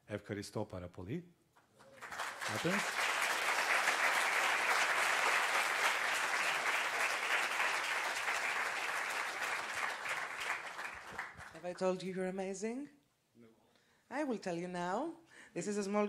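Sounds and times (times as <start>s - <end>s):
audience applauding: 1.8s - 11.6s.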